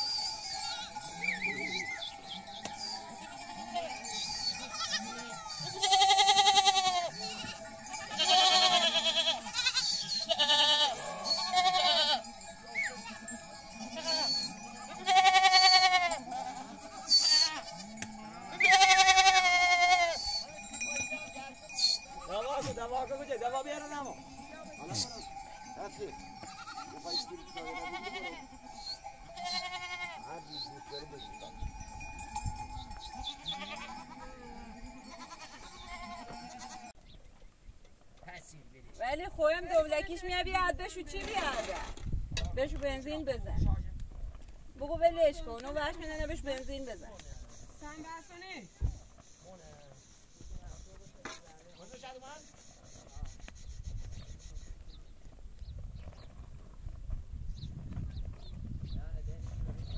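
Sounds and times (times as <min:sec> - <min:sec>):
small bell ringing: 0:00.0 - 0:37.0
sheep bleating: 0:02.8 - 0:32.2, 0:32.8 - 0:37.0.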